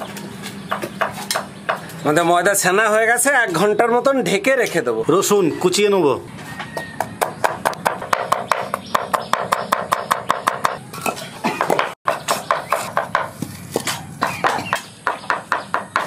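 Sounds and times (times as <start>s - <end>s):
knife chopping on wooden board: 7.0s - 16.0s.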